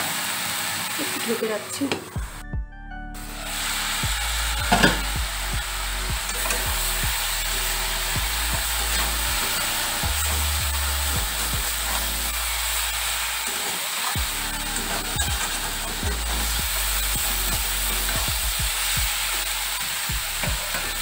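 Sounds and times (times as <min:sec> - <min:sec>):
frying sizzle: 0:00.0 - 0:02.4, 0:03.2 - 0:21.0
spatula scraping a steel wok: 0:06.2 - 0:18.2.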